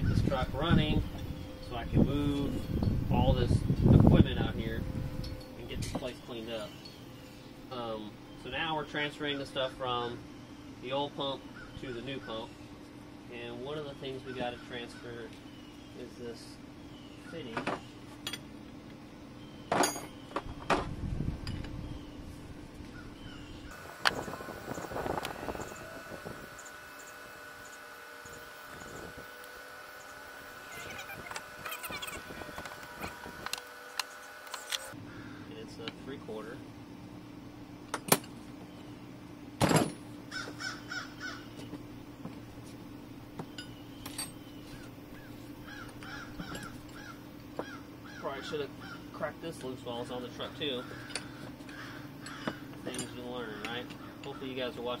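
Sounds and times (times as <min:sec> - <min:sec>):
bird calling: 0:06.0 - 0:12.8, 0:14.1 - 0:18.1, 0:21.7 - 0:35.6, 0:40.3 - 0:41.8, 0:43.4 - 0:49.3, 0:50.4 - 0:55.0
metal tools clattering: 0:19.7 - 0:20.2, 0:43.5 - 0:44.5, 0:52.2 - 0:54.4.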